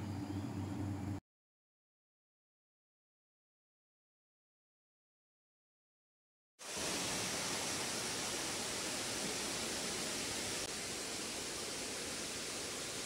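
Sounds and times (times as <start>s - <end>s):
stream rushing over boulders: 6.6s - 13.0s.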